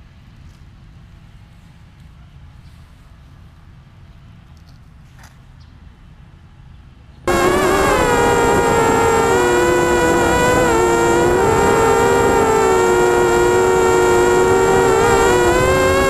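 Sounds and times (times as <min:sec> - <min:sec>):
quadcopter motors whining: 0:07.3 - 0:16.0.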